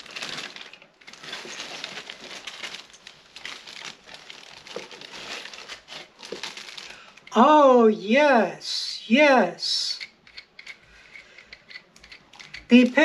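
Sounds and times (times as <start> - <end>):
plastic packaging crinkling: 0.0 - 7.3.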